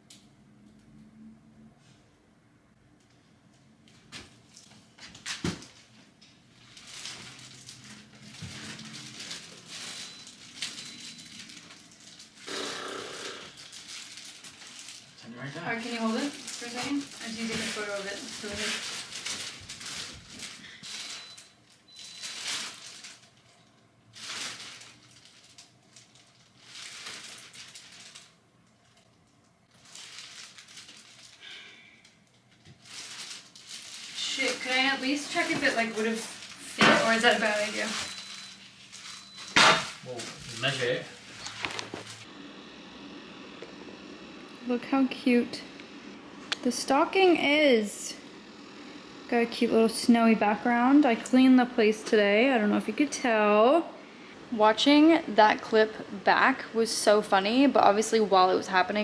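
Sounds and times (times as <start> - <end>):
plastic wrap crinkling: 4.5 - 42.3.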